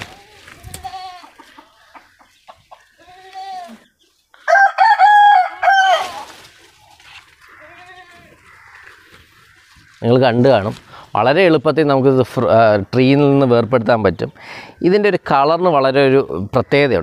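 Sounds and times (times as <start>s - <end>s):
faint farm animal calls: 0.0s - 17.0s
rooster crowing: 4.4s - 6.4s.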